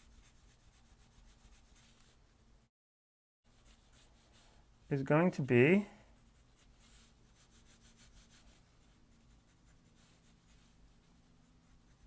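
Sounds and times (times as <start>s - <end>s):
pencil scratching on paper: 0.0s - 2.2s, 3.5s - 4.8s, 6.1s - 12.0s.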